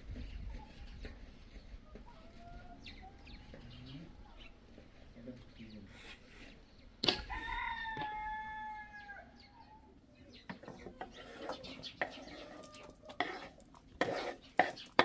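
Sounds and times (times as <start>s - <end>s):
rooster crowing: 7.1s - 9.4s.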